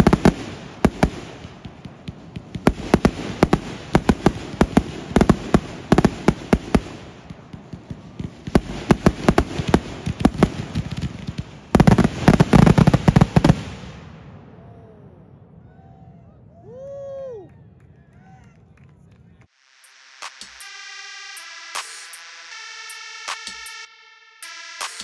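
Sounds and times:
fireworks bangs and crackling: 0:00.0 - 0:14.5.

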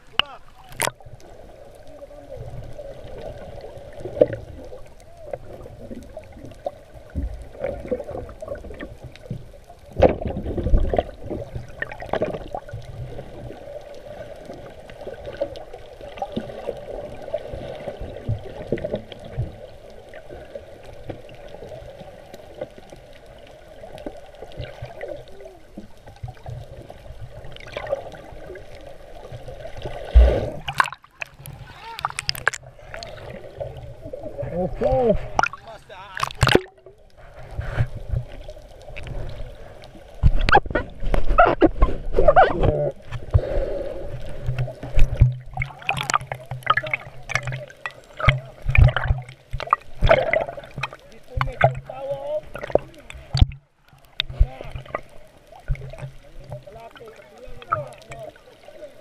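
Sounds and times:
water rushing and bubbling underwater: 0:00.0 - 0:59.0
underwater knocks and thumps: 0:04.0 - 0:13.6, 0:14.4 - 0:19.6, 0:25.8 - 0:39.4, 0:40.1 - 0:43.5, 0:44.1 - 0:58.4.

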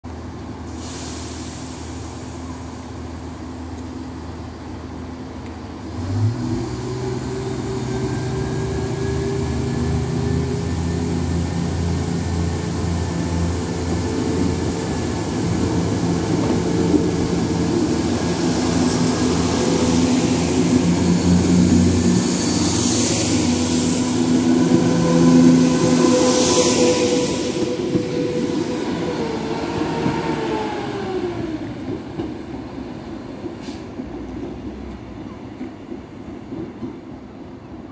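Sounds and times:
train diesel engines: 0:00.1 - 0:37.9.

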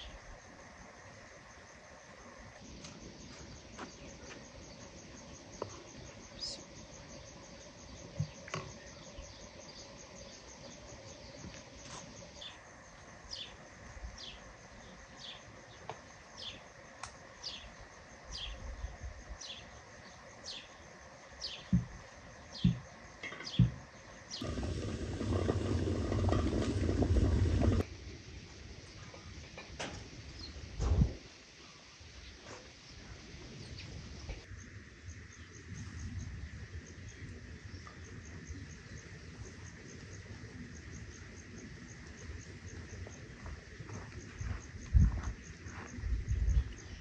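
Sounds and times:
high insect trill: 0:00.0 - 0:47.0
birds chirping: 0:02.7 - 0:11.4, 0:22.4 - 0:27.8
water bubbling around glass jars: 0:24.4 - 0:27.8.

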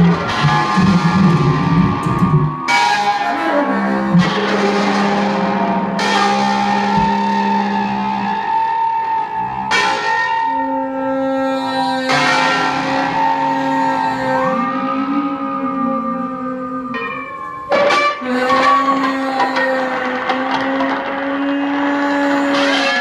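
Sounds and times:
baritone saxophone: 0:10.6 - 0:21.1.

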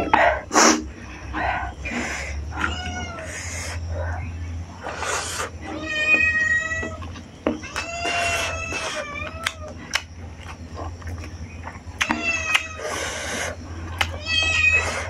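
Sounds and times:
cat meowing: 0:00.0 - 0:00.5, 0:01.8 - 0:03.8, 0:05.6 - 0:09.8, 0:12.0 - 0:13.0, 0:14.0 - 0:15.0
eating clicks and smacks: 0:06.8 - 0:15.0.

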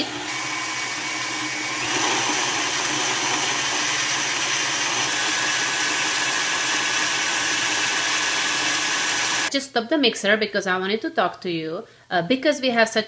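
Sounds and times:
stand mixer kneading dough: 0:00.0 - 0:09.5.

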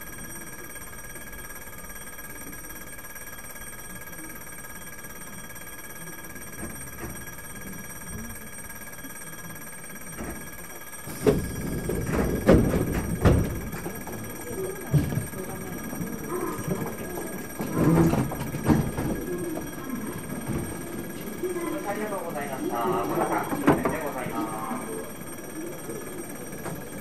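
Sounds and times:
high ringing tone: 0:00.0 - 0:27.0
loud knocks and clatter: 0:11.1 - 0:14.3, 0:16.6 - 0:19.7.

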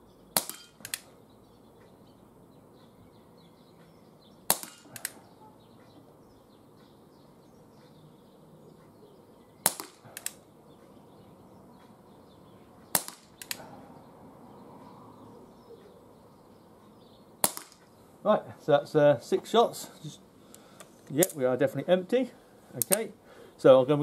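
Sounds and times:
air revolver shots: 0:00.4 - 0:01.1, 0:04.5 - 0:05.3, 0:09.6 - 0:10.4, 0:12.9 - 0:13.7, 0:17.4 - 0:17.8.

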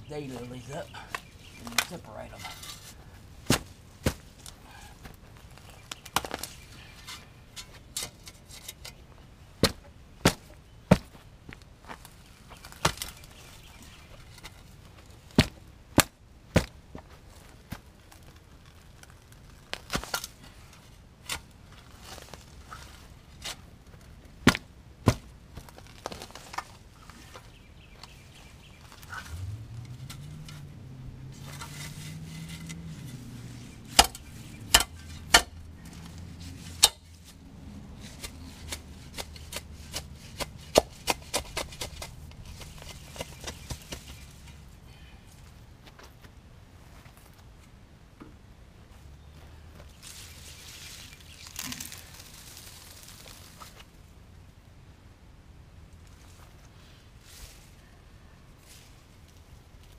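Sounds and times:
shovel chopping into soil: 0:01.1 - 0:04.6, 0:33.8 - 0:35.6, 0:38.0 - 0:44.6.

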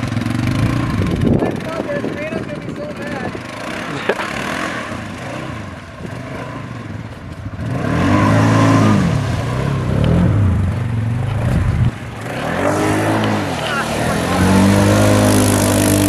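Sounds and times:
atv engine running and revving: 0:00.0 - 0:16.0
water churning: 0:00.0 - 0:16.0.

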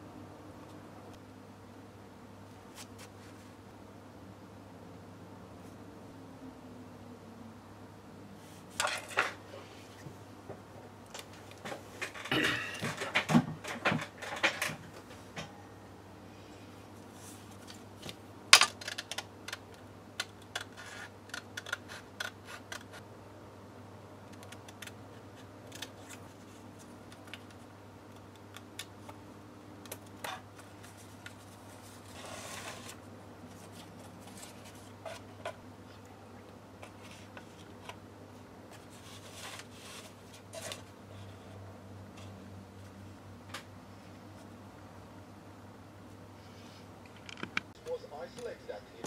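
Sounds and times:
faint low hum: 0:00.0 - 0:49.0
scissors snipping paper: 0:20.2 - 0:23.0.

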